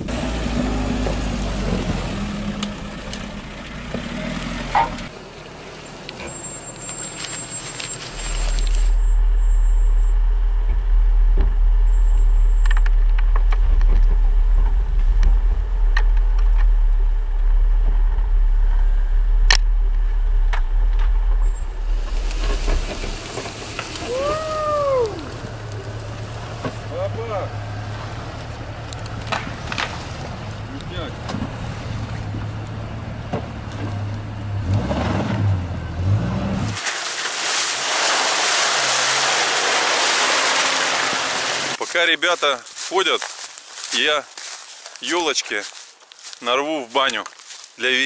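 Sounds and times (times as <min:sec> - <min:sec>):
engine labouring uphill: 0:00.0 - 0:36.8
loud deep rumble: 0:08.9 - 0:36.7.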